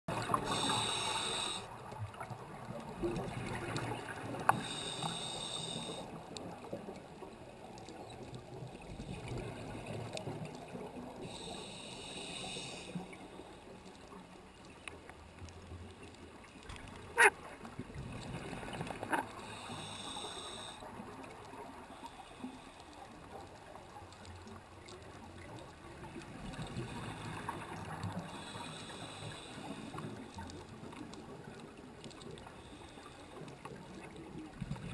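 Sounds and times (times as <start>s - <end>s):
underwater water wash: 0.1s - 34.9s.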